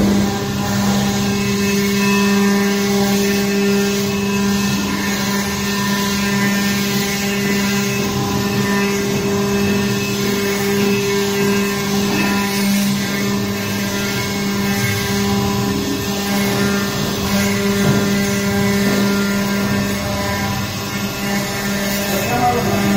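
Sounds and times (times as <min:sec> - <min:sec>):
stone carving machine hum: 0:00.0 - 0:22.9.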